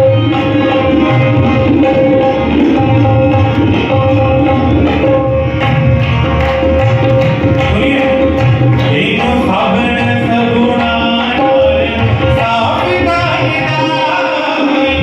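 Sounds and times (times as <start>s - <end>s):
hand drum rhythm: 0.0s - 15.0s
harmonium playing held chords: 0.0s - 15.0s
man singing: 7.6s - 15.0s.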